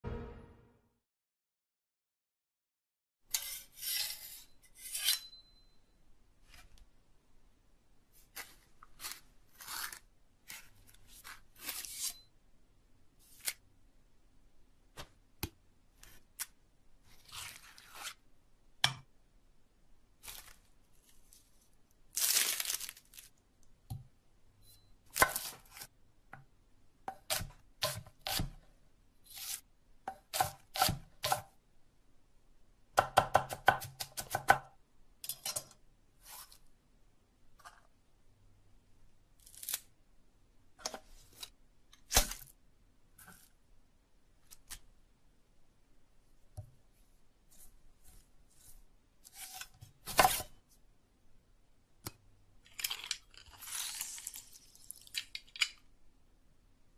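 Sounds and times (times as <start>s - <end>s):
soft paste being scooped: 8.1s - 12.3s, 15.9s - 18.3s, 36.2s - 36.7s, 46.9s - 50.9s, 52.7s - 55.8s
cutting food: 27.1s - 28.6s, 29.3s - 31.5s.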